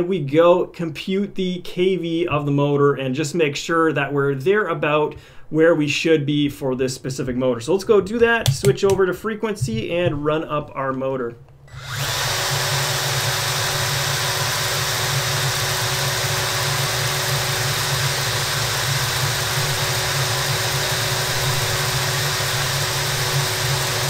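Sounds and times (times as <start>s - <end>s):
cordless drill running: 11.6s - 24.0s.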